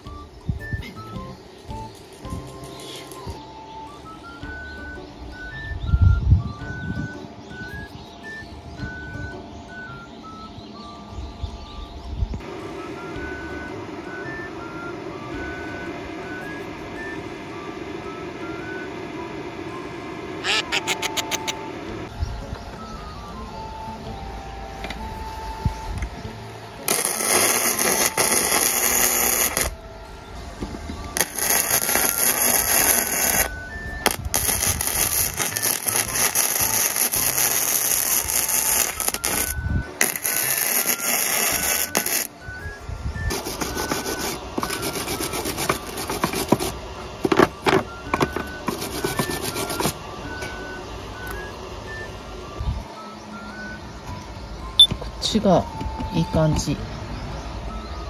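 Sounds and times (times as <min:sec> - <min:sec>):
faint background music: 0:00.0 - 0:58.0
welding arc crackling and sizzling: 0:01.7 - 0:04.7, 0:26.8 - 0:29.8, 0:31.1 - 0:47.9, 0:48.6 - 0:50.0.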